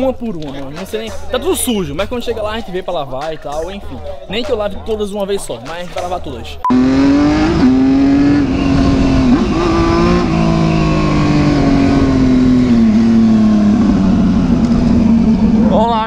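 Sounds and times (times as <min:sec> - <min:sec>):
motorcycle engine running: 0:06.7 - 0:16.0
wind on microphone: 0:07.3 - 0:16.0.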